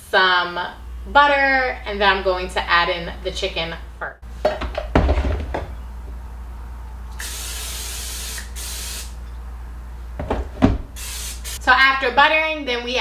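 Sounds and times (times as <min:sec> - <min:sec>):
aerosol spray hissing: 0:07.2 - 0:09.2, 0:11.0 - 0:11.6.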